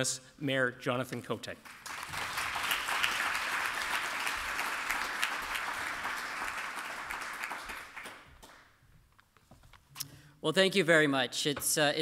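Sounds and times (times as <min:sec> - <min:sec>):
audience applause: 0:01.6 - 0:08.7.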